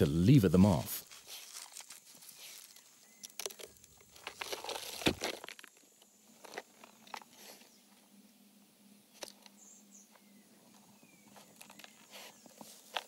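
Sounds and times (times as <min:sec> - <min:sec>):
animal digging in soil and rock: 0:00.8 - 0:07.8, 0:10.7 - 0:13.0.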